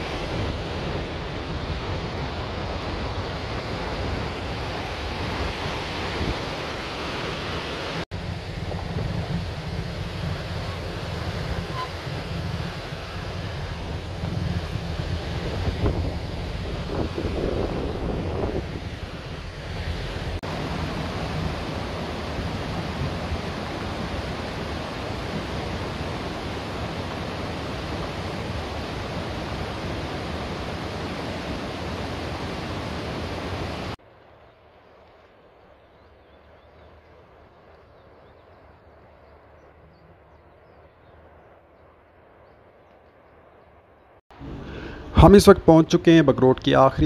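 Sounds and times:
river rushing over stones: 0:00.0 - 0:08.7, 0:09.3 - 0:34.0.

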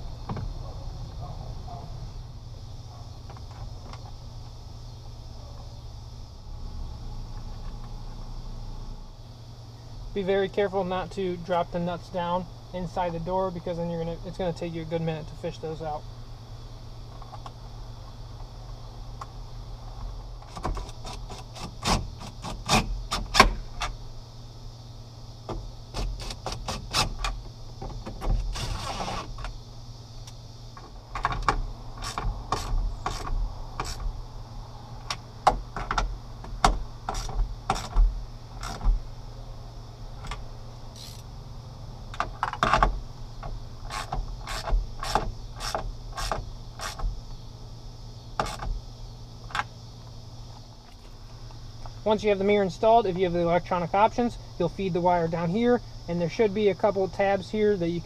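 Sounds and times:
ratchet wrench clicking: 0:32.0 - 0:34.0, 0:38.6 - 0:38.8, 0:40.9 - 0:41.3, 0:43.8 - 0:47.0.

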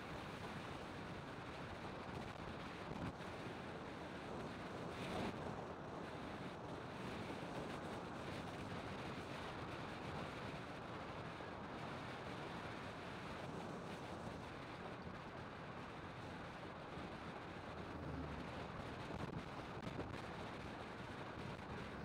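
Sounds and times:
vehicle road noise: 0:17.3 - 0:22.0.

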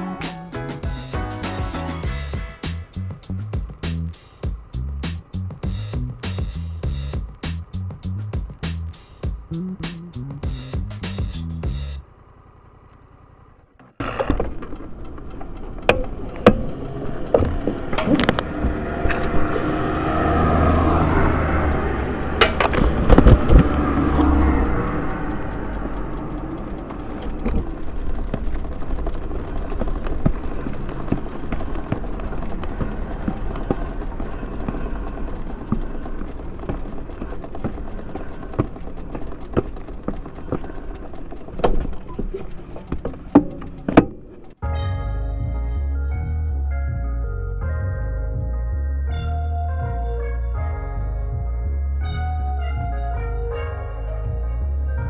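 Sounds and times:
vehicle engine passing: 0:00.0 - 0:44.6
outdoor traffic noise: 0:00.0 - 0:55.0
clicks: 0:12.8 - 0:44.6.

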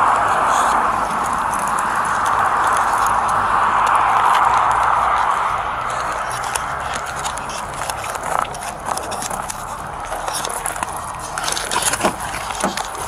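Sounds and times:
clicks and scrapes: 0:05.9 - 0:13.0.

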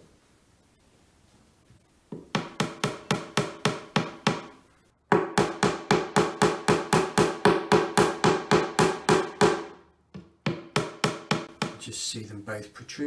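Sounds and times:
hammer tapping wooden dowels: 0:02.1 - 0:11.9.

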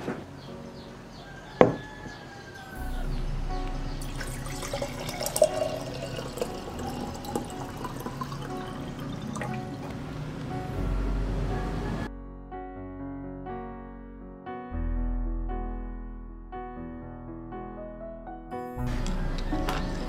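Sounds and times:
soft background music: 0:00.0 - 0:14.2, 0:17.5 - 0:20.0
water pouring into glass jar: 0:04.0 - 0:09.9.

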